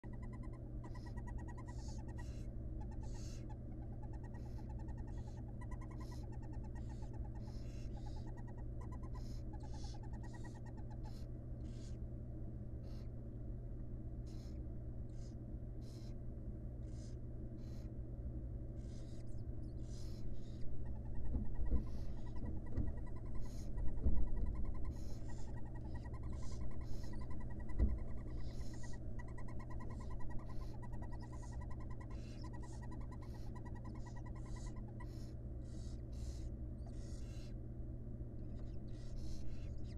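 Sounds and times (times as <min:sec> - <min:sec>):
low electrical hum: 0:00.0 - 0:39.9
owlets hissing begging calls: 0:00.1 - 0:12.0, 0:19.8 - 0:37.5.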